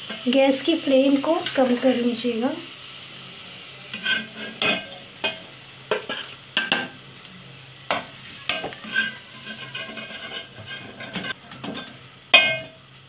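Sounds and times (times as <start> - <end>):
oil sizzling softly: 0.0 - 13.0
metal spatula scraping pot: 3.9 - 6.9, 7.9 - 12.8.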